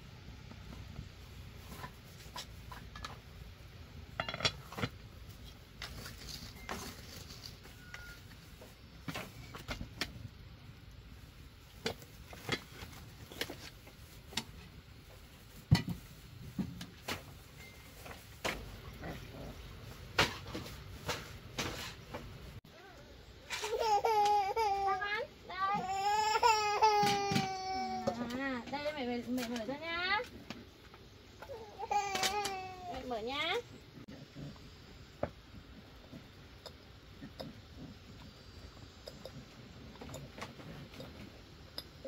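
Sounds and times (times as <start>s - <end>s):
objects being handled: 0.5s - 10.4s.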